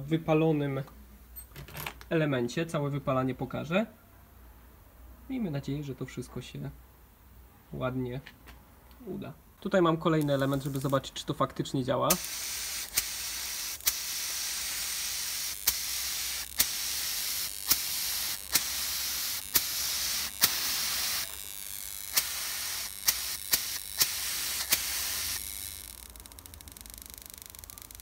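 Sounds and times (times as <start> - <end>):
compressed air hissing: 10.2 - 11.0, 12.1 - 25.6.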